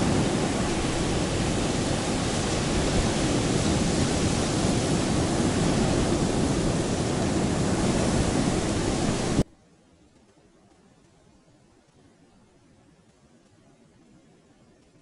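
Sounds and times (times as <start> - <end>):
surf washing onto beach: 0.0 - 9.5.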